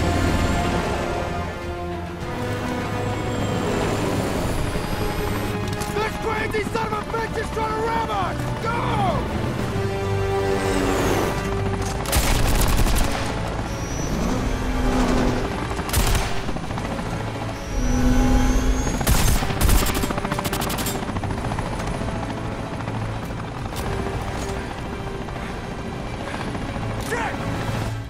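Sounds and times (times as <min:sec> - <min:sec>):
helicopter running: 0:00.0 - 0:28.0
machine-gun fire: 0:12.1 - 0:13.4, 0:19.0 - 0:20.8.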